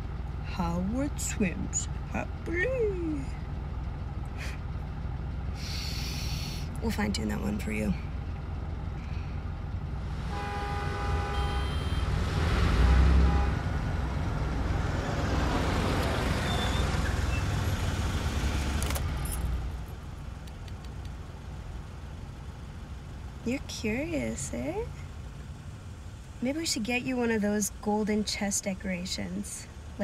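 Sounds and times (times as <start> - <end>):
highway traffic rumble: 0.0 - 30.0
short pitched tone: 11.3 - 12.0.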